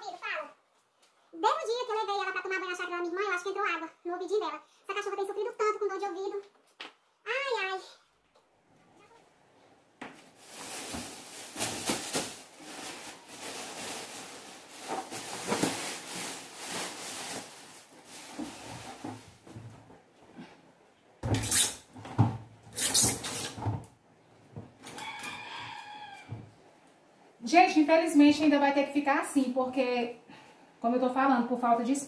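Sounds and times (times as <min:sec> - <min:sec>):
plastic bags rustling: 0:10.1 - 0:20.1.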